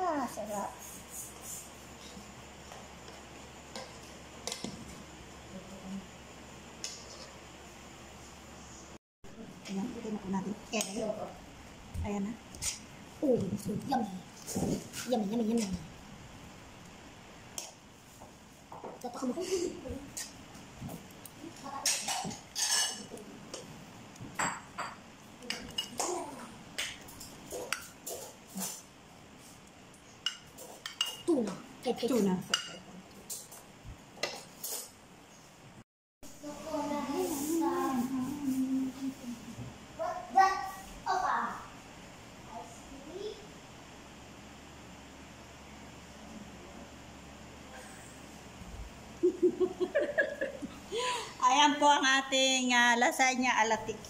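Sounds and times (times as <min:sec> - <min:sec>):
metal spoon clinking on pans: 0:21.8 - 0:23.1, 0:30.2 - 0:31.3.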